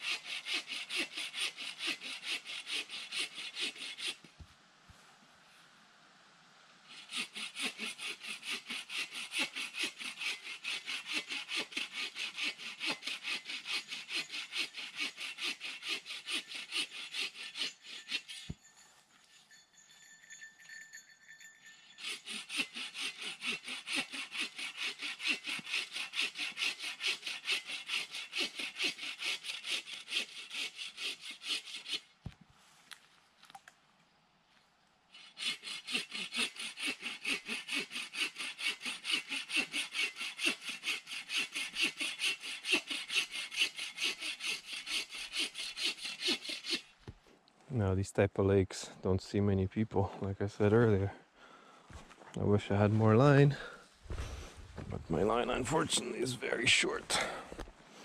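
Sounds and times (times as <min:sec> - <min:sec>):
hand saw cutting log: 0:00.0 - 0:04.3, 0:06.9 - 0:18.6, 0:22.0 - 0:32.1, 0:35.1 - 0:47.0, 0:52.7 - 0:57.4.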